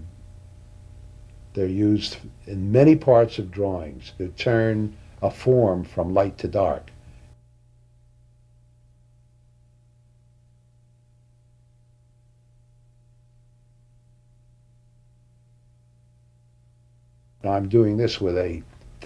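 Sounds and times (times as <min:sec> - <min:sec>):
faint low electrical hum: 0:00.0 - 0:19.0.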